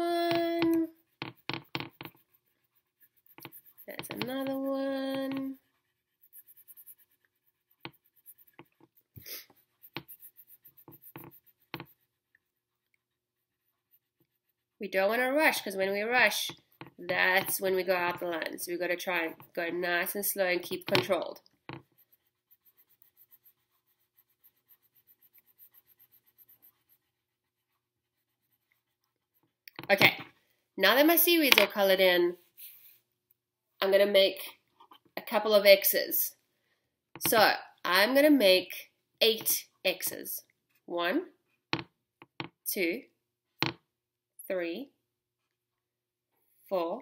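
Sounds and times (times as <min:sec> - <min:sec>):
crayon scratching on paper: 0:00.0 - 0:30.2.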